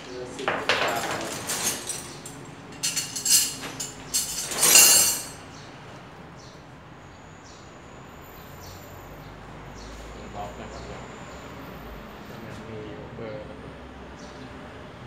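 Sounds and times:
metal tools clinking and rattling: 0.4 - 5.4.

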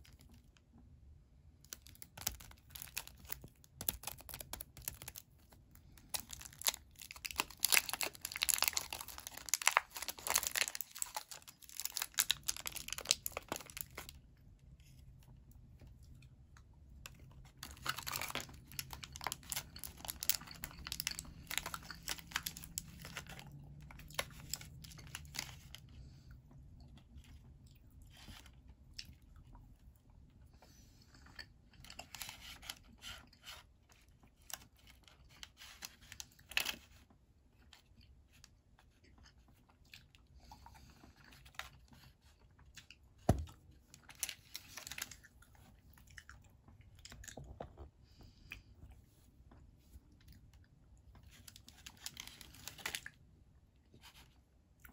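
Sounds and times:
foil wrapper crinkling and tearing: 1.7 - 14.2, 17.5 - 25.8, 34.4 - 37.0, 43.9 - 45.3, 51.2 - 53.2
chewing: 45.0 - 48.8.

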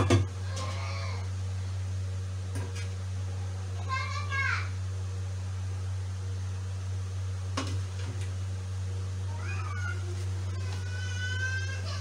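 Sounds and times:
steady low hum: 0.0 - 12.0
high-pitched meow-like cries: 0.4 - 1.3, 9.3 - 12.0.

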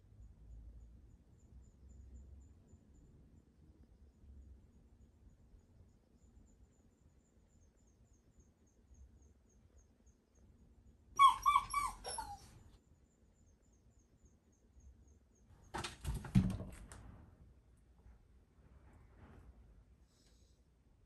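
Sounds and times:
dog whining: 11.2 - 12.6.

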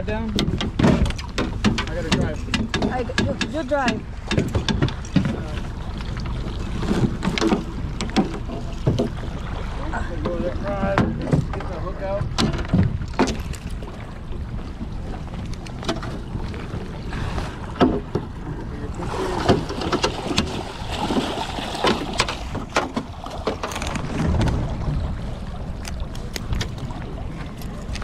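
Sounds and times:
knocks and clicks of fishing gear: 0.3 - 9.3, 10.2 - 16.7, 17.7 - 18.4, 19.4 - 24.7, 25.8 - 28.0
wind rushing on microphone: 10.7 - 28.0.

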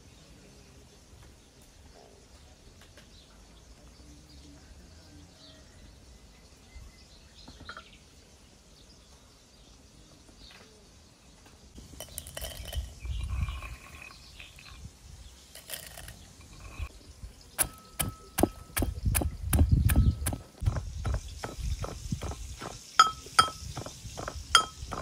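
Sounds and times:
faint bird chirps: 0.0 - 25.0
walnuts clinking in metal mortar: 11.8 - 25.0.

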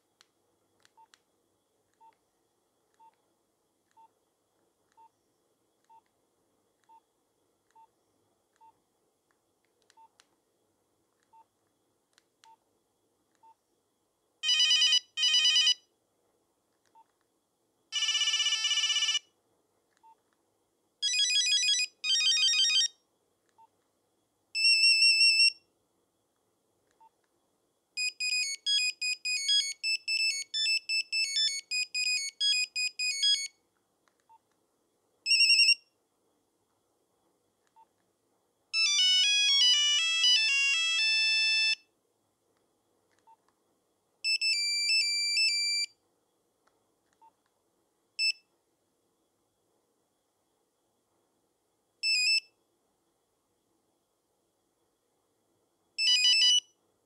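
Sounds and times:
phone keypad beeps: 28.0 - 33.5, 44.3 - 45.9, 52.0 - 52.5, 56.0 - 56.6.

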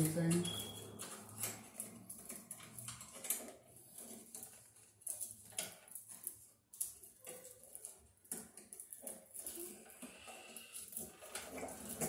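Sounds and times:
wires scraping against metal panel: 0.0 - 12.0.

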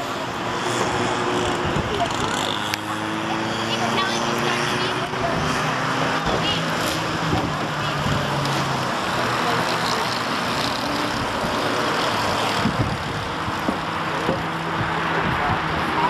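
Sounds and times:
go-kart engines buzzing past: 0.0 - 16.0.

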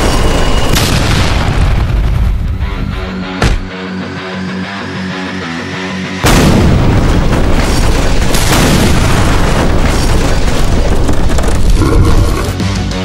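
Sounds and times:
loud distorted explosion: 0.0 - 2.6, 6.2 - 12.5
background music: 2.5 - 8.7, 11.7 - 13.0.

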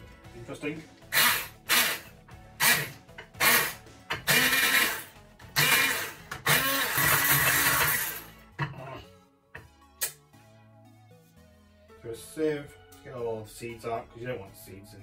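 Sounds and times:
background music: 0.0 - 15.0
stick blender motor: 1.1 - 8.3.

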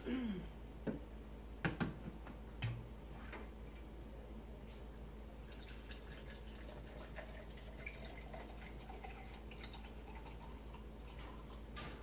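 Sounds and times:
steady low hum: 0.0 - 12.0
wine trickling and dripping: 5.3 - 11.8.

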